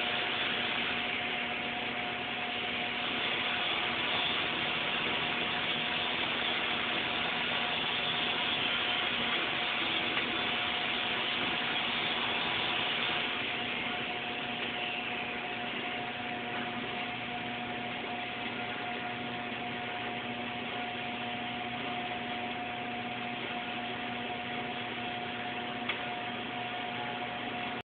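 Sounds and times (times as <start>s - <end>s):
welding arc hissing: 0.0s - 18.8s
steady hum: 0.0s - 27.8s.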